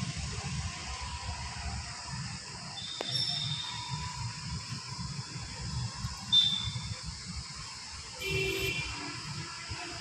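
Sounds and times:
thin high whistle: 2.7s - 4.4s, 6.2s - 7.0s.

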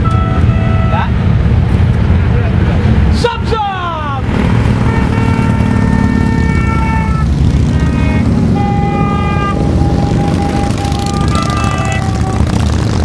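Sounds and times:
short horn beeps: 0.0s - 1.2s
motorcycle horns honking: 0.0s - 1.3s, 4.6s - 13.0s
motorcycle engines rumbling: 0.0s - 13.0s.

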